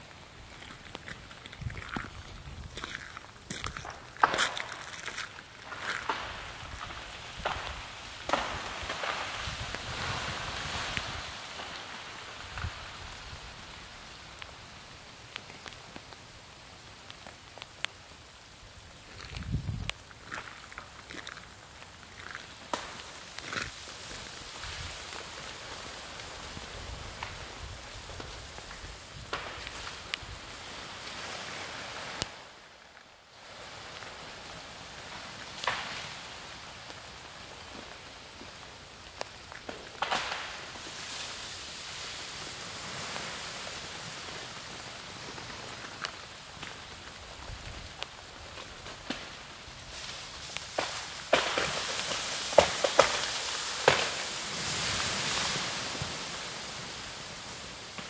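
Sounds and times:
freezing rain pattering: 0.0 - 58.0
sharp ice cracks and clatters: 0.5 - 6.8, 19.1 - 22.8.

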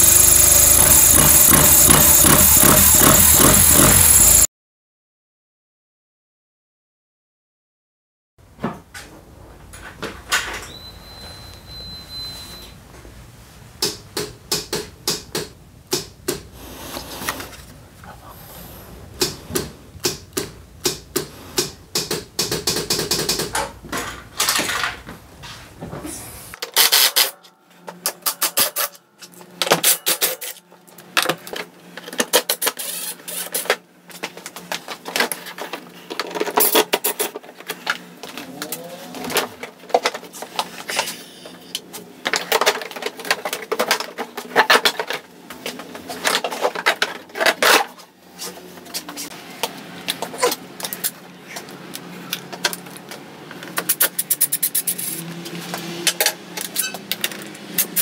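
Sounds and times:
impact driver rattling: 0.0 - 4.4.

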